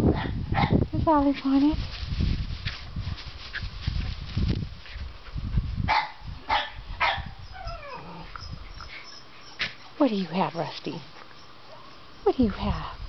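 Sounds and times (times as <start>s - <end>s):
young dog barking: 0.1s - 0.8s, 5.9s - 8.0s
dog whining: 7.4s - 9.8s.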